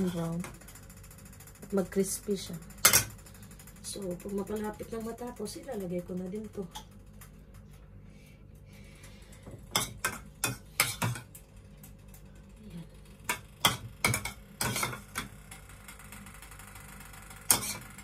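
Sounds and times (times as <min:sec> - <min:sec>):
metal spoon scraping ceramic bowl: 0:13.7 - 0:15.0, 0:17.5 - 0:17.9.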